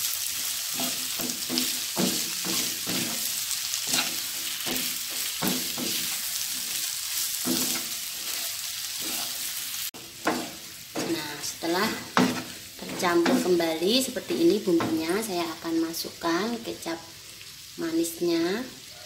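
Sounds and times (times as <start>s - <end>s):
food sizzling in a wok: 0.0s - 19.0s
wooden spatula scraping a wok: 0.4s - 15.3s.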